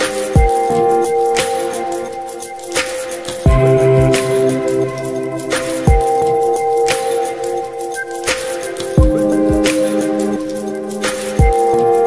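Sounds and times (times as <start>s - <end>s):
held chord tones: 3.5s - 7.9s.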